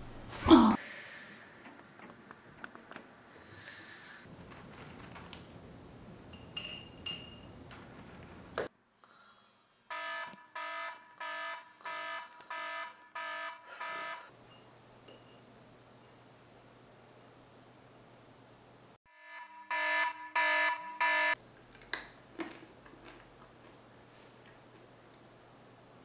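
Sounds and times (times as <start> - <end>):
alarm clock beeping: 9.9 - 14.3, 19.1 - 21.4.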